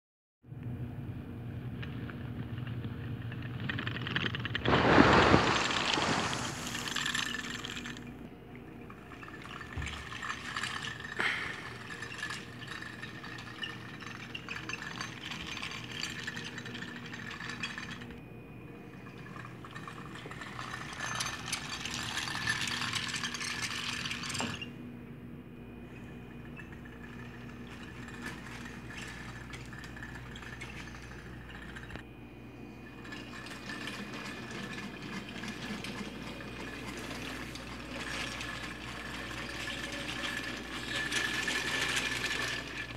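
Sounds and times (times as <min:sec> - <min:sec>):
faint steady hum: 0:00.5 - 0:42.9
toy train wheels rattling: 0:08.9 - 0:18.2, 0:19.1 - 0:24.7, 0:26.3 - 0:32.0, 0:32.8 - 0:42.9.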